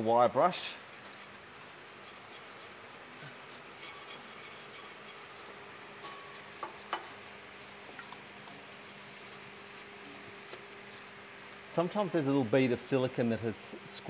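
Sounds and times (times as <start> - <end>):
wire brush scrubbing metal: 0.0 - 11.0.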